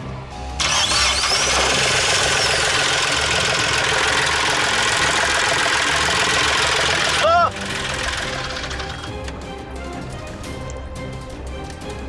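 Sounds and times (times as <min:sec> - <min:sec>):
diesel engine idling: 0:00.3 - 0:09.4.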